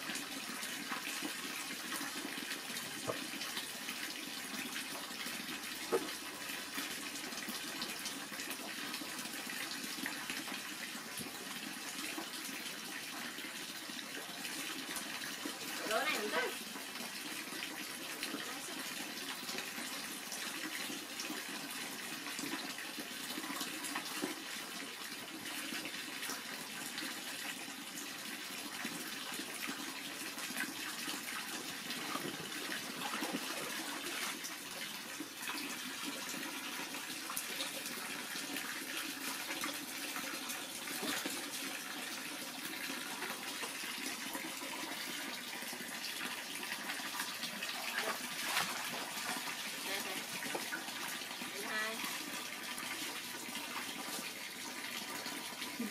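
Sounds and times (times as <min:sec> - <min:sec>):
water pouring into pool: 0:00.0 - 0:55.9
light water splashing: 0:02.8 - 0:03.7, 0:05.7 - 0:06.9, 0:30.6 - 0:34.9, 0:46.8 - 0:52.2.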